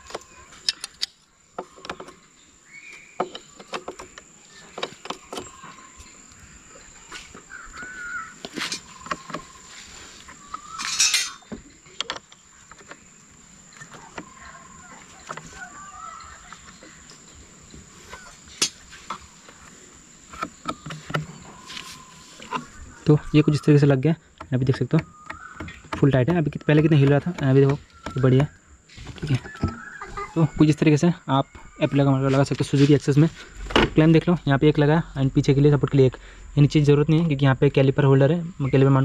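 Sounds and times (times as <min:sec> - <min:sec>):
crows cawing: 0:07.4 - 0:09.7, 0:14.1 - 0:17.1, 0:25.1 - 0:26.0.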